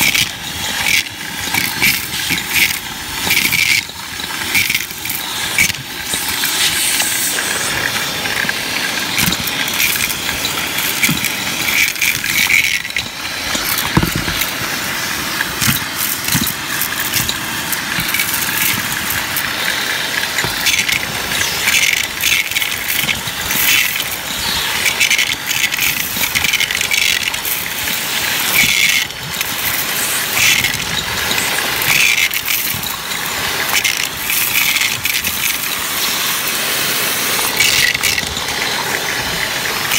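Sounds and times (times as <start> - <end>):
debris rattling up vacuum wand: 0.0 - 39.9
vacuum cleaner running: 0.0 - 39.9.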